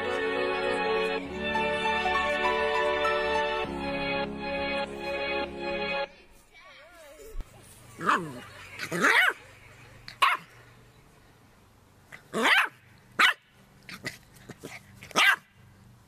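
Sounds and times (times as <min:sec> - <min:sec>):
puppy yipping: 0:15.1 - 0:15.4.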